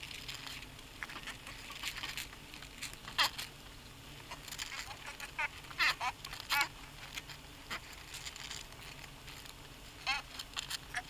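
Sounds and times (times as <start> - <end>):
warbling bird calls: 4.2 - 7.0, 10.0 - 11.0.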